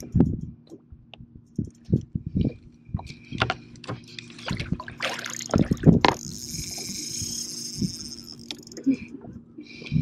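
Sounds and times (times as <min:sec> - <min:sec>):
water splashing: 0:04.4 - 0:05.9.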